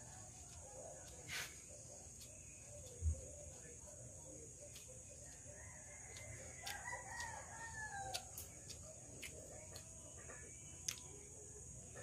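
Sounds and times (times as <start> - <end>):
rooster crowing faintly: 4.7 - 9.4.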